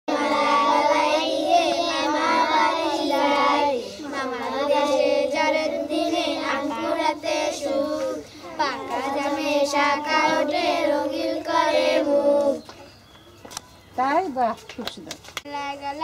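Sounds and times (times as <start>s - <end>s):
girls singing: 0.1s - 12.7s.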